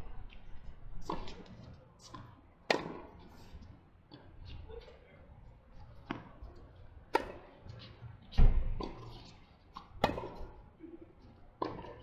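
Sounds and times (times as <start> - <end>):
tennis ball hit by racket: 2.7 - 3.1, 7.1 - 7.5, 9.8 - 10.5.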